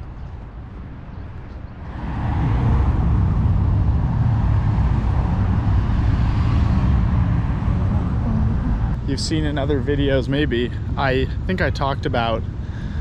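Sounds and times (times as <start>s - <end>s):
cars driving past: 1.7s - 11.4s.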